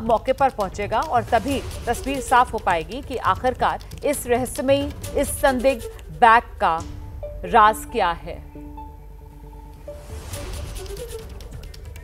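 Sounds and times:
music with drum beat: 0:00.0 - 0:06.0
rapid percussive hits: 0:00.0 - 0:06.0, 0:10.1 - 0:12.0.

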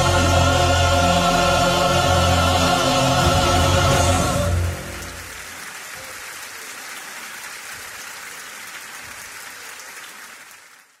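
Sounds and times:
audience applauding: 0:02.8 - 0:11.0.

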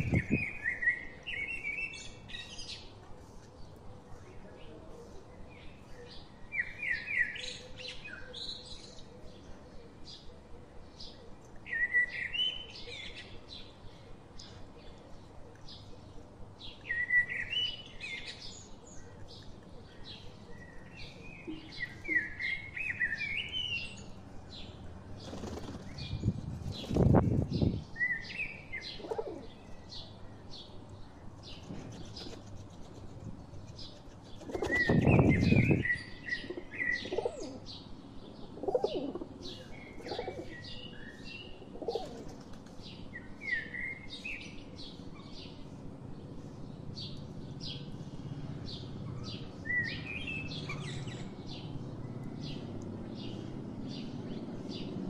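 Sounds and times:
wing flapping: 0:25.2 - 0:27.2, 0:34.0 - 0:35.3
pigeon cooing: 0:28.9 - 0:29.6, 0:36.4 - 0:37.7, 0:38.6 - 0:40.6, 0:41.6 - 0:42.4.

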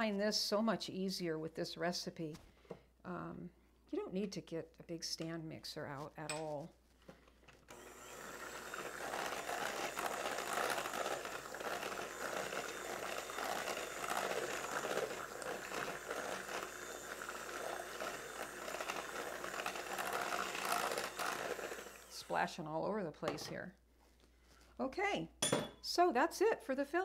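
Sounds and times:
electric hand mixer whirring: 0:07.6 - 0:22.6.

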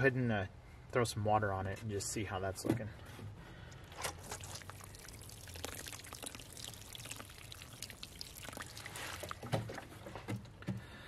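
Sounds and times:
water splashing onto soil: 0:04.0 - 0:09.9.

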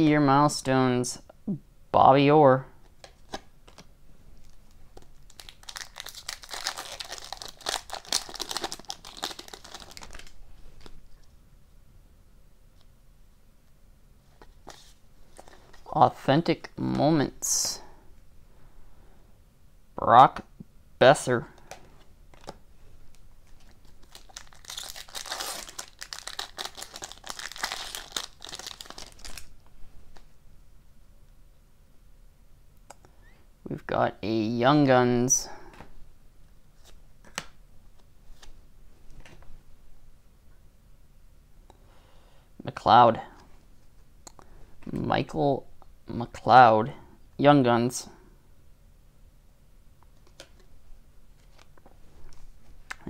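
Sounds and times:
foil wrapper crinkling and tearing: 0:04.4 - 0:10.9, 0:23.5 - 0:29.5.

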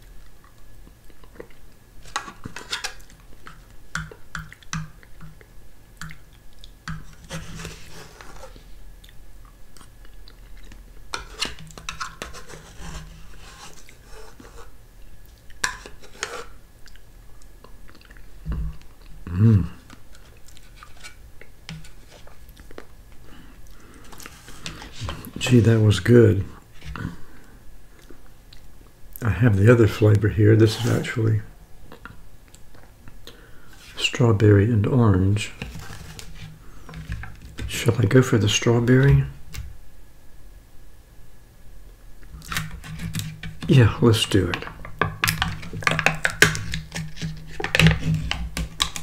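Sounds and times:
spoon scraping plastic cup: 0:02.0 - 0:03.6, 0:06.9 - 0:08.6, 0:11.1 - 0:14.7, 0:15.6 - 0:16.6, 0:42.4 - 0:43.7, 0:45.3 - 0:49.0
chewing sounds: 0:16.8 - 0:19.2
short hummed voice: 0:19.2 - 0:19.8.

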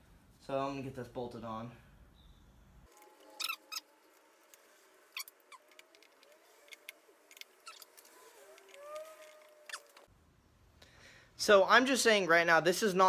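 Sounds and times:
faint squeaks: 0:03.0 - 0:10.1.

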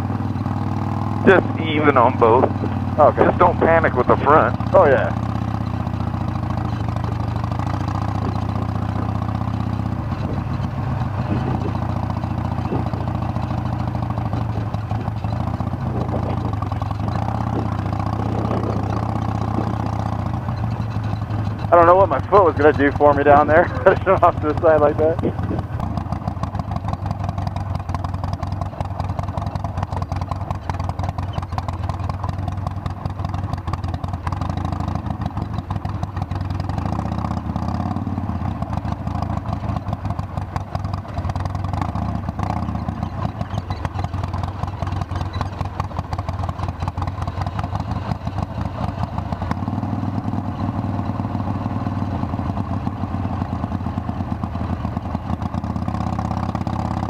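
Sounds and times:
motorcycle engine running at low speed: 0:00.0 - 0:57.0.

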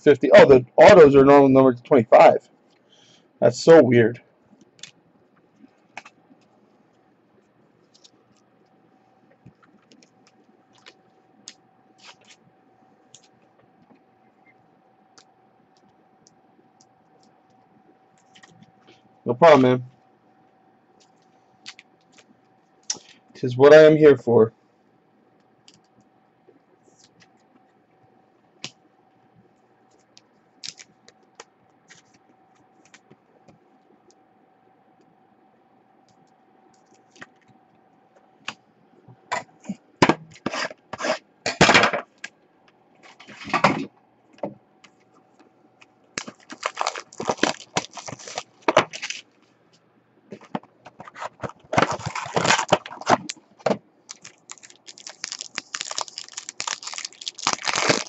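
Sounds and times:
faint steady hum: 0:00.0 - 0:58.0
plastic packaging crinkling: 0:09.5 - 0:12.4, 0:30.6 - 0:32.2, 0:46.2 - 0:49.4, 0:50.5 - 0:58.0.

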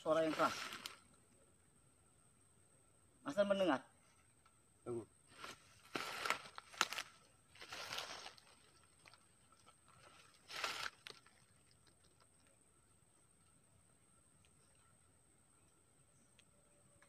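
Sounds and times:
crunching in dry leaves: 0:00.1 - 0:01.1, 0:05.3 - 0:12.5.

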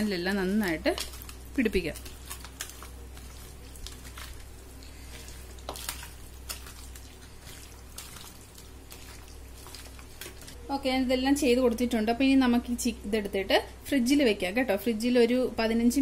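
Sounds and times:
steady low hum: 0:00.0 - 0:16.0
hand squelching raw meat: 0:00.5 - 0:10.6.

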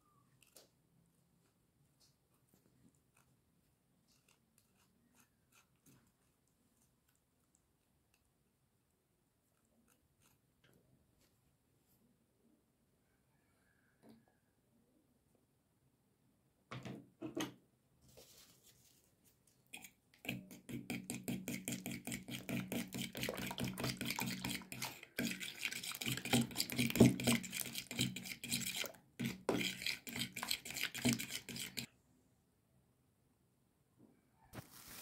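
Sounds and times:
fork beating eggs in bowl: 0:04.1 - 0:06.3, 0:19.7 - 0:31.9.

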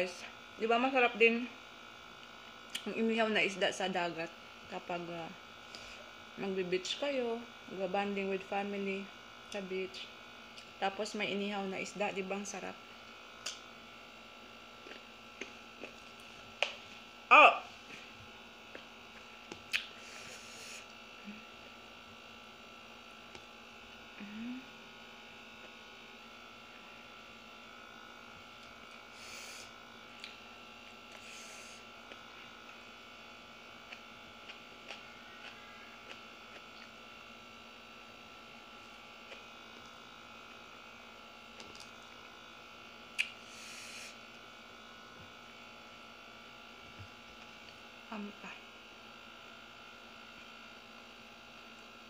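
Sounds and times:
faint electrical buzz: 0:00.0 - 0:52.0
eating clicks and smacks: 0:19.5 - 0:20.0, 0:43.2 - 0:43.4.

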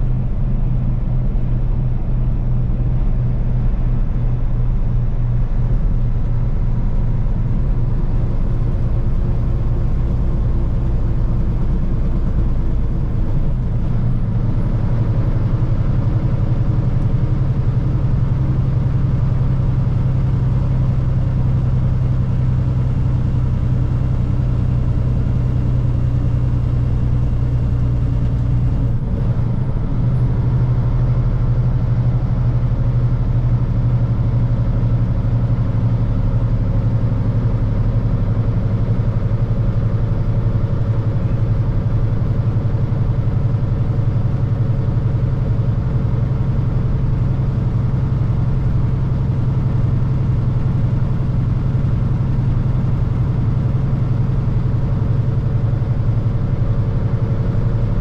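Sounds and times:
road and tyre noise: 0:00.0 - 0:58.0
truck diesel engine running: 0:00.0 - 0:58.0.

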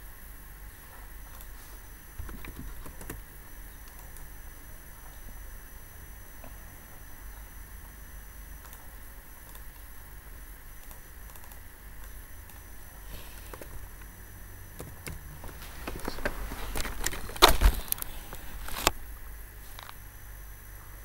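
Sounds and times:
faint hiss with high whine: 0:00.0 - 0:21.0
keyboard and mouse clicks: 0:02.2 - 0:04.3, 0:08.6 - 0:09.9, 0:10.8 - 0:12.7.

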